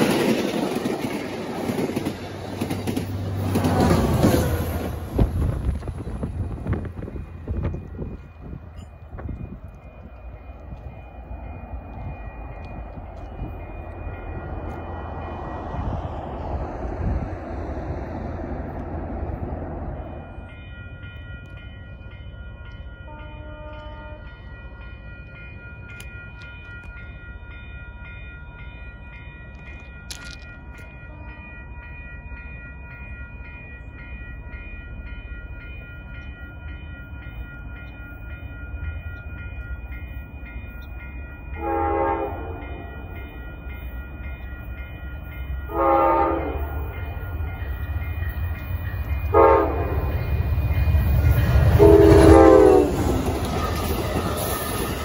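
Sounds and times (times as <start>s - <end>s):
train rumble: 0.0s - 55.0s
train horn blasts: 23.1s - 24.3s, 41.6s - 42.9s, 45.7s - 47.0s, 49.3s - 50.2s, 51.7s - 53.2s.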